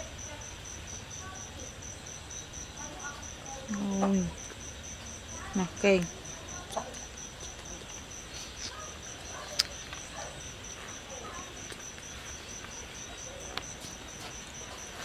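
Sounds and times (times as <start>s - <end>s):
insect chirping: 0.0s - 15.0s.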